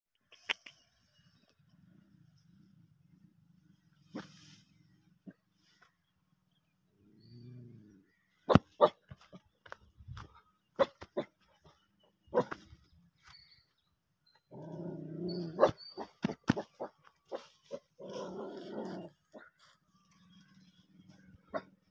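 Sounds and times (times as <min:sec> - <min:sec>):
dog barking: 0:08.5 - 0:09.0, 0:12.3 - 0:12.6, 0:15.6 - 0:17.4
dog growling: 0:14.5 - 0:15.7, 0:18.0 - 0:19.4.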